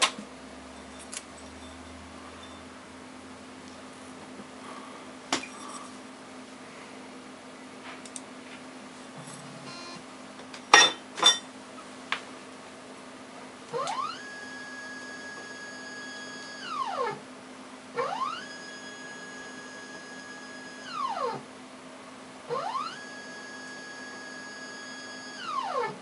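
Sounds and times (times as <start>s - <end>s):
scanner low hum: 8.8s - 10.3s, 13.7s - 21.6s, 22.4s - 25.8s
motor high whine: 9.2s - 10.0s, 13.7s - 17.2s, 18.0s - 21.5s, 22.5s - 26.0s.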